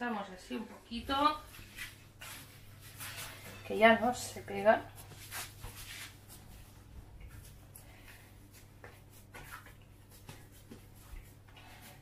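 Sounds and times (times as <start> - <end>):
low steady hum: 0.0 - 12.0
hands kneading dough: 4.9 - 12.0.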